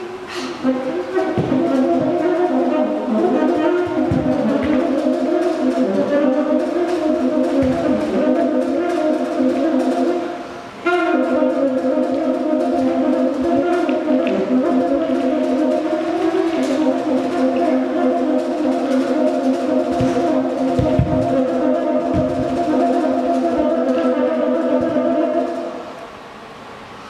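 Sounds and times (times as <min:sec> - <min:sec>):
saxophone low notes: 0:00.0 - 0:26.2.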